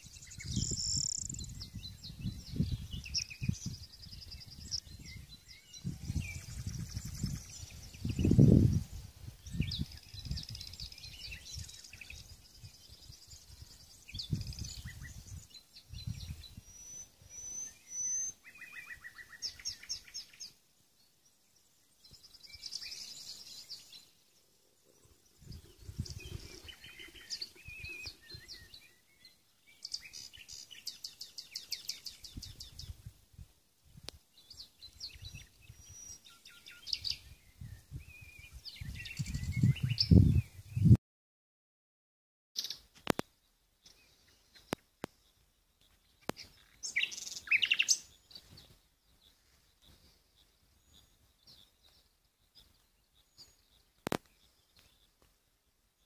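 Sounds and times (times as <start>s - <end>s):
wind gusts on microphone: 0.0s - 16.8s, 25.3s - 28.8s, 32.0s - 36.2s, 36.9s - 41.0s
songbirds chirping and singing: 0.0s - 33.2s, 33.9s - 41.0s, 42.6s - 56.0s.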